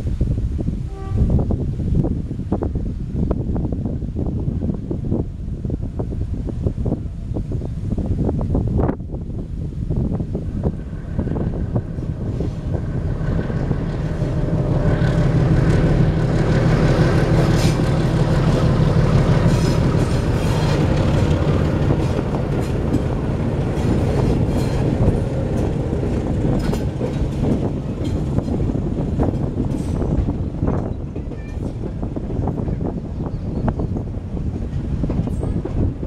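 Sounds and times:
diesel locomotive engines humming: 0.3s - 36.0s
train wheels clacking over rail joints: 12.7s - 33.0s.

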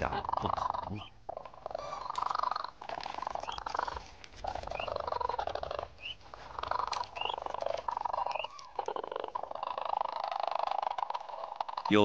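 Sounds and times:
cranes rattling trilled calls: 0.0s - 12.0s
high rising chirp: 7.2s - 10.4s.

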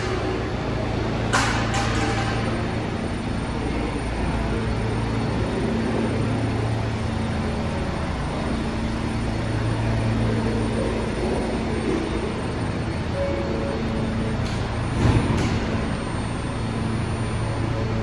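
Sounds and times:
subway train rumble: 0.0s - 18.0s.

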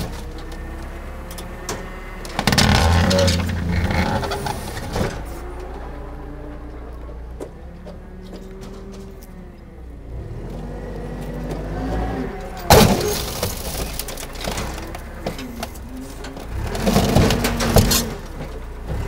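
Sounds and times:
forklift engine revving: 0.0s - 19.0s
fiberglass hull cracking and crunching: 12.7s - 18.6s.

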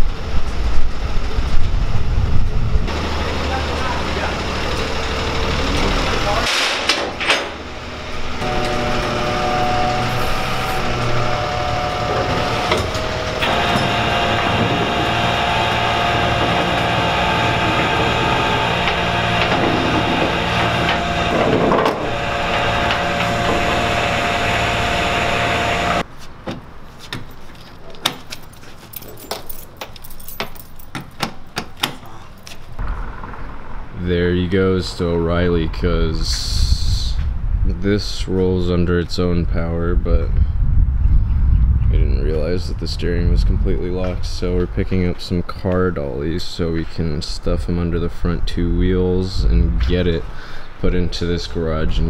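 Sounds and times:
tow truck running with whine: 0.1s - 26.1s, 32.8s - 34.1s.

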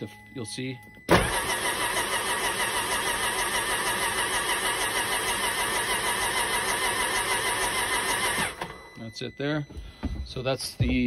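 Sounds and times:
engine cranking on starter: 1.1s - 8.8s.

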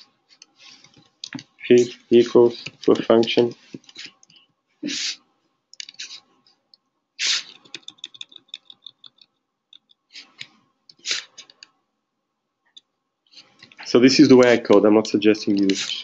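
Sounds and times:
short hisses: 4.8s - 5.2s, 7.2s - 7.6s, 11.0s - 11.4s.

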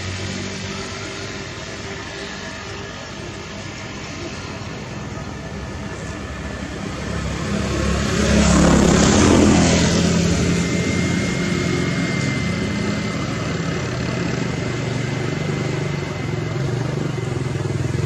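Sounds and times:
steady engine hum: 0.0s - 18.0s
vehicle passing by: 5.4s - 12.8s.

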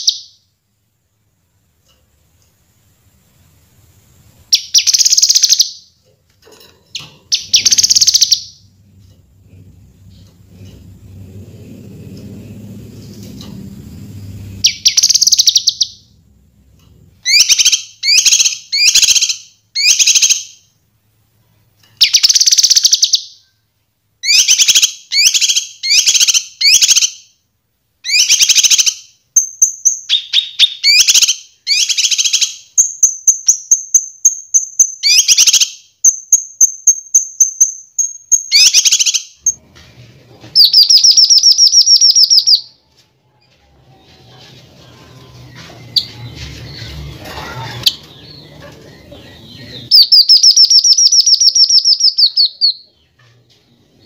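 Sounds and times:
bird chattering song: 4.5s - 5.9s, 6.9s - 8.6s, 14.6s - 16.1s, 17.3s - 20.5s, 28.1s - 39.5s, 40.6s - 42.8s, 45.1s - 53.4s
rapid bird trill: 7.3s - 8.6s, 14.6s - 16.1s, 49.8s - 52.9s
high thin bird whistle: 40.6s - 42.7s, 49.9s - 52.8s.

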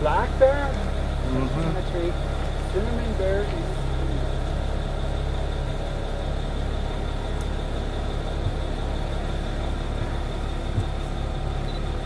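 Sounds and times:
vehicle engine idling: 0.0s - 12.0s.

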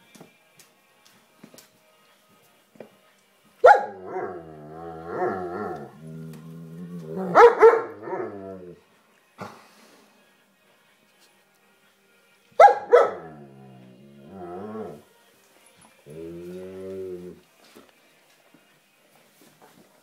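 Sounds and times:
dog barking: 3.6s - 4.4s, 7.2s - 8.3s, 12.6s - 13.3s
dog growl-howl: 3.9s - 8.8s, 13.0s - 15.0s, 16.0s - 17.4s.

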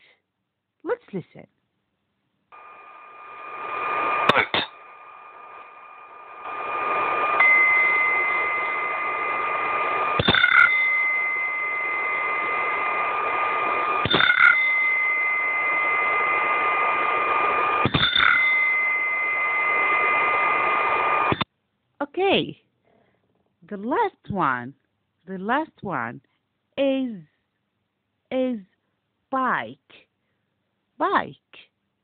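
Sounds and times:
boat rushing noise with whine: 2.6s - 21.4s.

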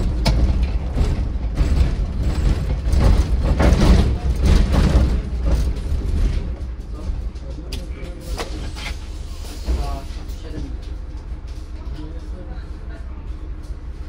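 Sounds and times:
bus body rattling and clunking: 0.0s - 14.0s
bus engine and road rumble: 0.0s - 14.0s.

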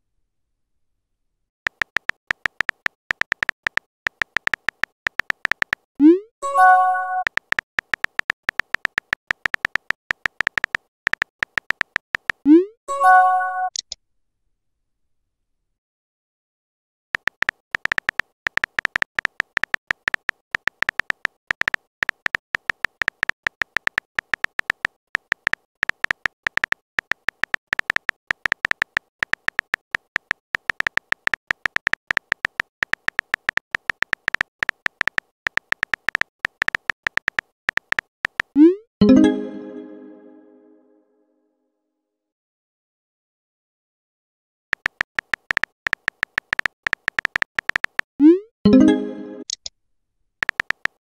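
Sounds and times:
phone keyboard typing clicks: 1.7s - 5.9s, 6.6s - 12.6s, 17.2s - 38.6s, 44.7s - 48.1s, 50.4s - 51.0s.

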